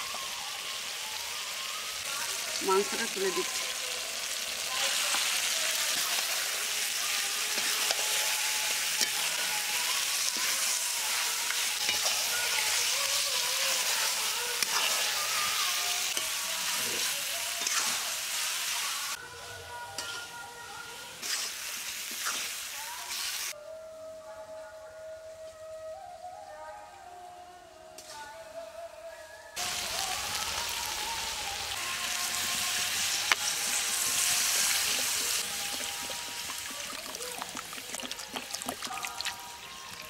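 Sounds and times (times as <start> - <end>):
meat sizzling in hot oil: 0.0 - 19.2, 21.2 - 23.6, 29.6 - 40.0.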